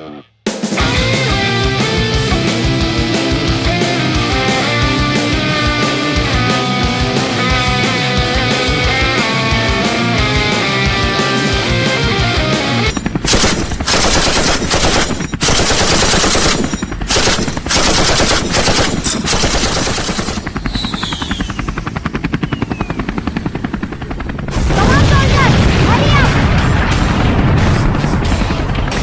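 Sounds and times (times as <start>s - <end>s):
automatic gunfire effects: 12.8s - 21.4s
faint falling whistles: 20.6s - 23.1s.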